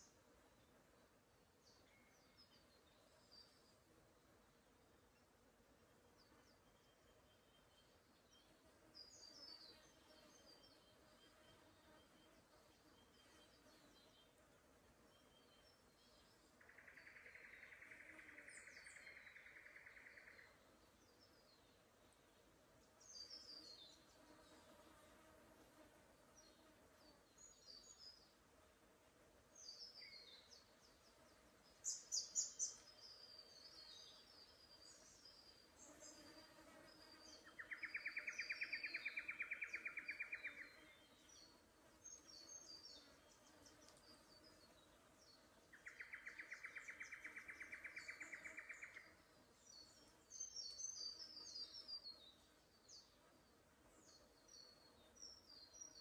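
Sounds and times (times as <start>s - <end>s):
small birds chirping: 29.5s - 56.0s.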